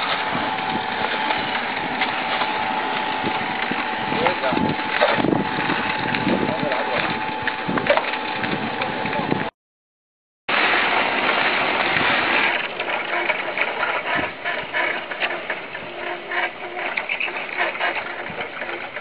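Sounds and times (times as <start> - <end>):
carriage rattling along rails: 11.0 - 19.0.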